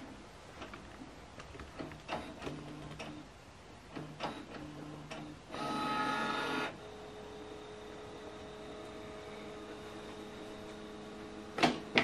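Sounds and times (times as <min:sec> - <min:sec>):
printer faint hum: 0:04.0 - 0:12.0
printer motor whine: 0:04.0 - 0:12.0.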